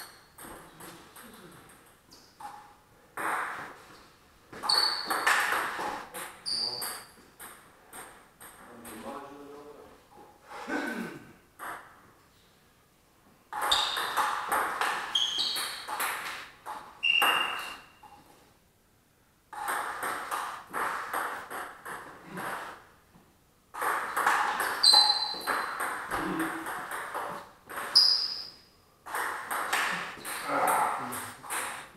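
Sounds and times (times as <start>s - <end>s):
high squeaks: 4.6s - 5.3s, 6.4s - 7.1s, 13.6s - 14.2s, 15.1s - 15.9s, 17.0s - 18.2s, 24.8s - 25.8s, 27.8s - 28.6s.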